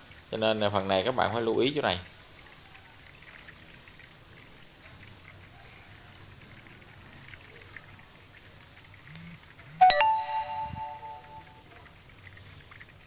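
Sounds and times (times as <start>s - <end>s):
bell-like ringing tone: 9.8s - 11.6s.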